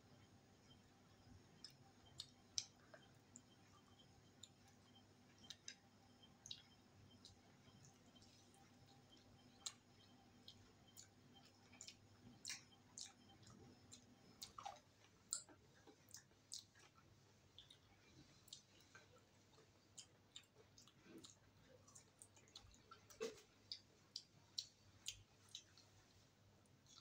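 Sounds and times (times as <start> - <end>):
wet mouth clicks while chewing: 1.6 - 3.5, 9.6 - 26.0.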